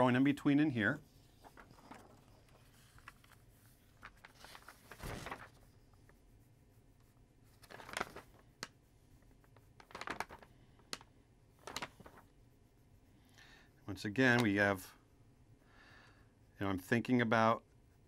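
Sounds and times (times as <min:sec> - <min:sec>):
pencil scratching on paper: 0:00.0 - 0:04.9, 0:05.5 - 0:09.9, 0:12.0 - 0:15.5
paper rustling: 0:00.9 - 0:06.2, 0:07.4 - 0:12.4, 0:14.1 - 0:14.8.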